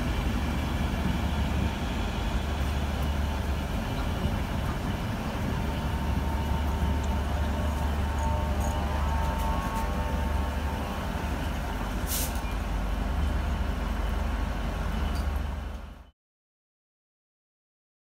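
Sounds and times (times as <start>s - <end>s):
train wheels rumbling on rails: 0.0s - 16.1s
short hiss: 12.0s - 12.5s.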